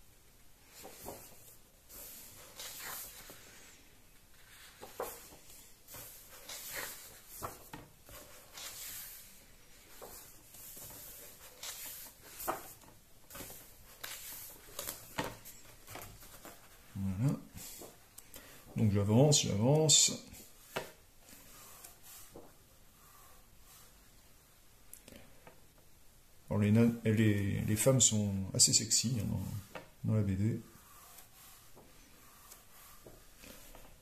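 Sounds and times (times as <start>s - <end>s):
book pages turning: 0.6s - 3.7s, 4.3s - 18.9s.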